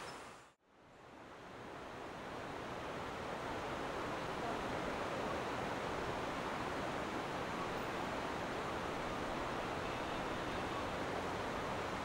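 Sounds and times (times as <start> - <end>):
river water rushing: 1.4 - 12.0.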